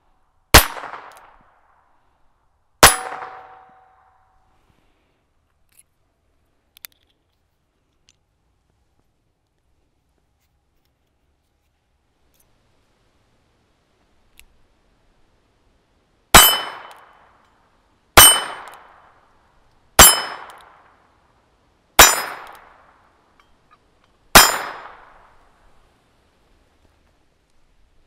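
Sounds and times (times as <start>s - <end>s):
small revolver shots: 0.5s - 1.4s, 2.8s - 4.0s, 16.3s - 17.2s, 18.2s - 19.1s, 20.0s - 21.0s, 22.0s - 23.0s, 24.3s - 25.4s
steel plate target ringing: 2.8s - 4.3s, 16.4s - 17.0s, 18.2s - 18.8s, 20.0s - 20.6s, 22.0s - 22.6s, 24.4s - 25.2s.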